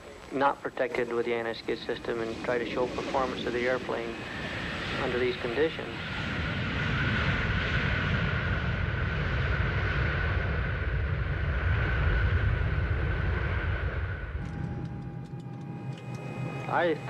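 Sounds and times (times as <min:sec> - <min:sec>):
jet engines whining: 0:00.0 - 0:17.0
deep rumble: 0:05.9 - 0:17.0.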